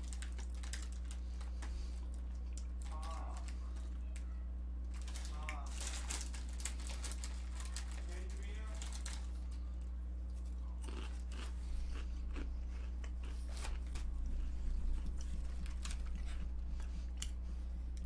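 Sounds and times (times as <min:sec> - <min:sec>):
low electrical hum: 0:00.0 - 0:18.0
mouth crunching potato sticks: 0:10.3 - 0:17.4.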